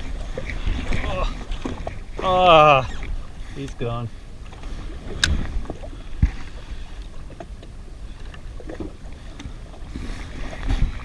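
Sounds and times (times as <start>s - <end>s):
choppy water: 0.0s - 11.0s
wind on microphone: 4.7s - 7.4s, 8.0s - 11.0s.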